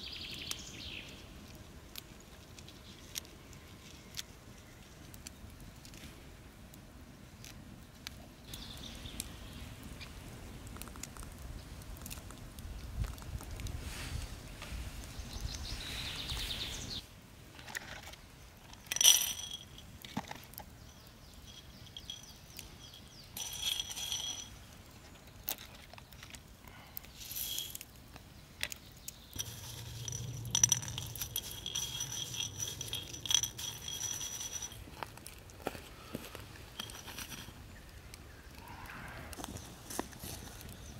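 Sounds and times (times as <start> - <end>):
seeds rattling in metal bowl: 18.6 - 20.3, 21.4 - 24.7, 27.1 - 27.8, 29.4 - 35.1, 36.7 - 37.7.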